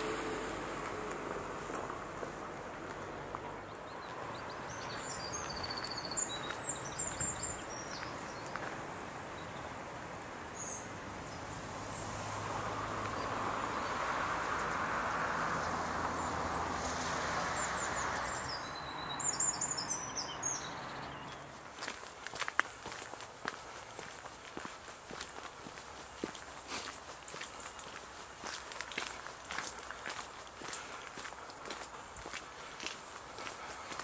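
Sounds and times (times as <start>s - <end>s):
small birds chirping: 3.0s - 9.8s, 17.5s - 34.0s.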